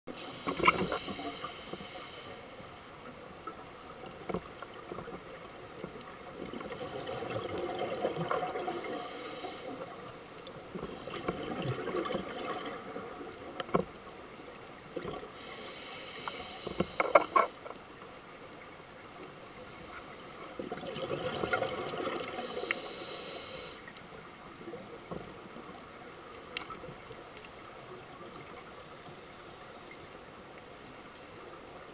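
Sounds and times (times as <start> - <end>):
bubbles gurgling underwater: 6.4 - 8.7, 11.0 - 13.4, 20.6 - 22.4.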